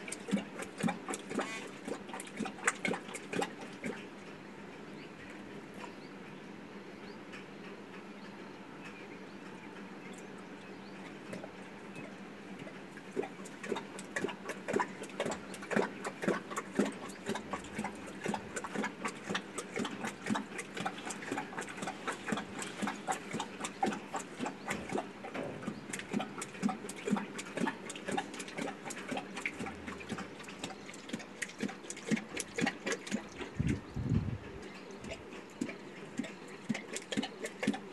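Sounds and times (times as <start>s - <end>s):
lion lapping water: 0.0s - 37.9s.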